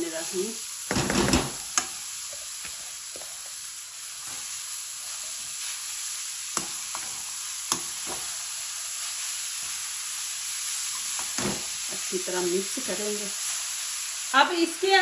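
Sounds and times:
vegetables sizzling in hot oil: 0.0s - 15.0s
metal spoon scraping a pan: 6.5s - 8.3s.

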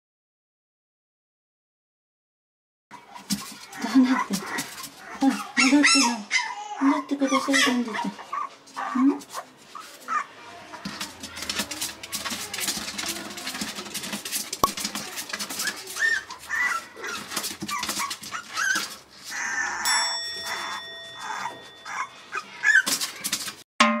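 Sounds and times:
scrabbling against plastic and paper: 3.0s - 5.6s, 8.6s - 19.6s, 22.3s - 23.6s
puppy whimpering: 3.0s - 14.2s, 14.8s - 23.5s
bell-like ringing tone: 19.8s - 22.4s.

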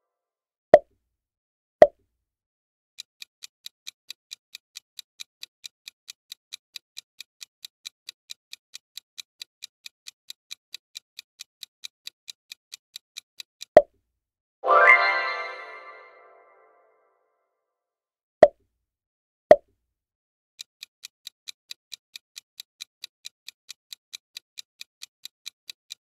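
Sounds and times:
fast clock ticking: 3.0s - 13.8s, 20.6s - 26.0s
ringing sound effect: 14.6s - 16.8s.

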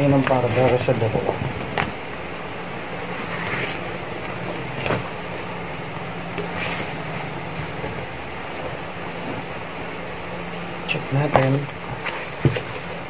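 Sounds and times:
steady background hum: 0.0s - 13.0s
leather sheet rustling and flapping: 2.7s - 10.0s.

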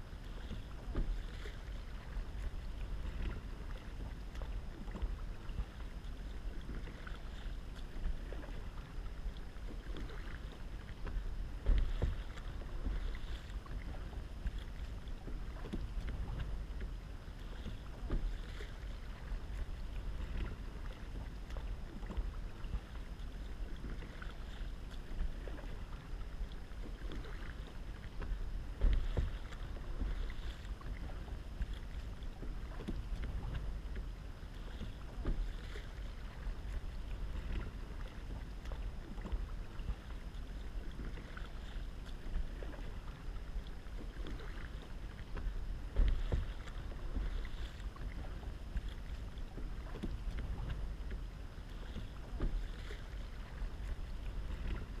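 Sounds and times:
paddle blades splashing: 0.0s - 55.0s
water lapping along hull: 0.0s - 55.0s
wind rumble on microphone: 0.0s - 55.0s.

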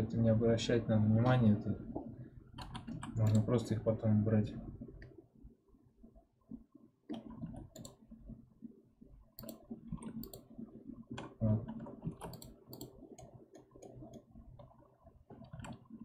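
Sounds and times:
mouse and keyboard clicking: 2.6s - 3.5s, 7.1s - 8.0s, 9.4s - 10.5s, 11.2s - 14.3s, 15.4s - 15.8s.

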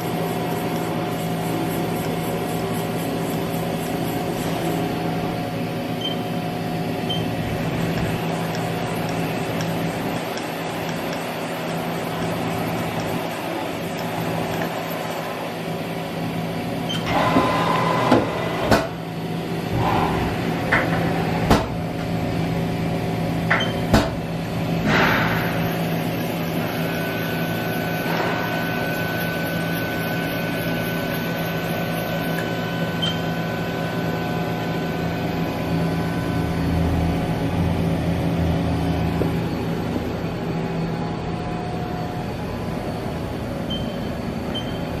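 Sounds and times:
thin steady whine: 0.0s - 17.3s, 24.4s - 45.0s
machine hum: 0.0s - 45.0s.

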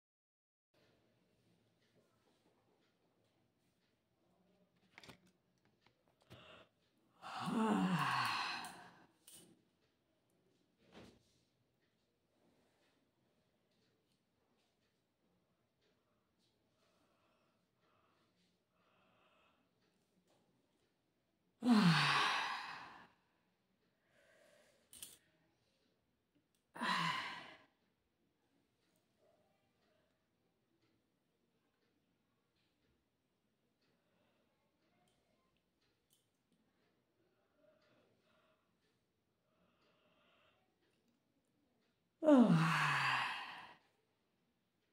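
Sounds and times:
woman yawning: 7.2s - 9.0s, 21.6s - 23.0s, 26.8s - 27.6s, 42.2s - 43.8s.

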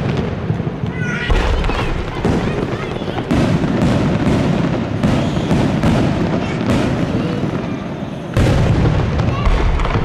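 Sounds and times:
firework shells bursting: 0.0s - 10.0s
fireworks display din: 0.0s - 10.0s.

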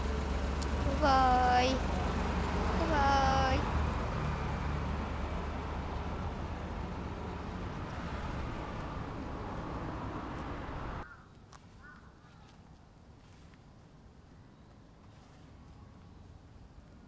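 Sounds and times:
car engine rumble: 0.0s - 11.0s
street noise: 0.0s - 13.2s.

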